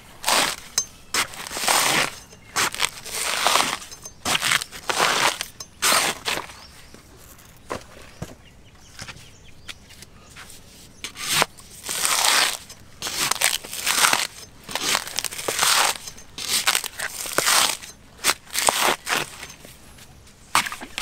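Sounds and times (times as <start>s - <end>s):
coconut husk tearing: 0.0s - 6.6s, 11.0s - 19.5s.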